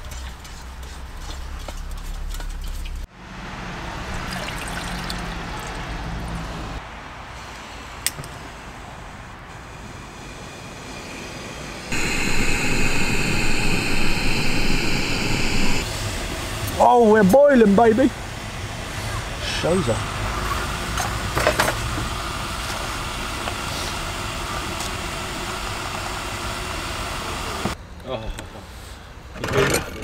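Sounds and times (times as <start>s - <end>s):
water pouring into cup: 4.2s - 5.8s
gas burner hissing: 7.4s - 20.0s, 21.1s - 27.8s.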